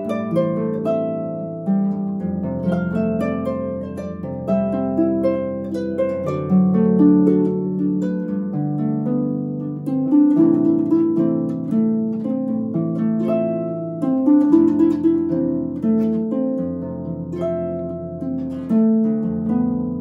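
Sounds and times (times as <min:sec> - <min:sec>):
harp playing pop melody: 0:00.0 - 0:20.0.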